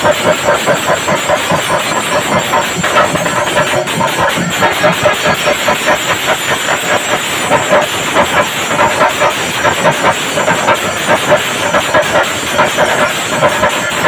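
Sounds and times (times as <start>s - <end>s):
drums beaten fast with sticks: 0.0s - 14.0s.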